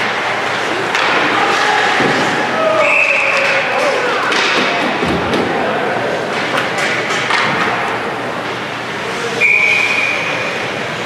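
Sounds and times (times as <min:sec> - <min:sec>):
hockey sticks and puck knocking: 0:00.0 - 0:05.6, 0:06.2 - 0:08.6
referee's whistle: 0:02.8 - 0:03.4, 0:09.4 - 0:10.4.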